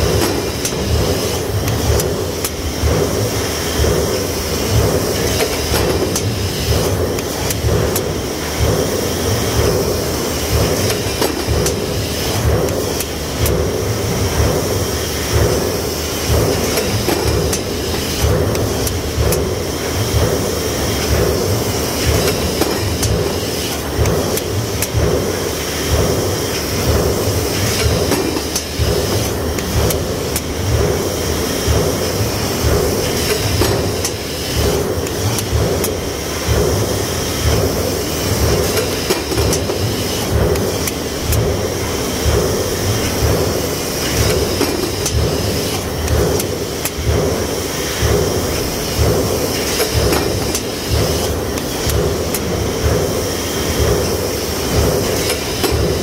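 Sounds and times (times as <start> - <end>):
machinery hum: 0.0 - 56.0.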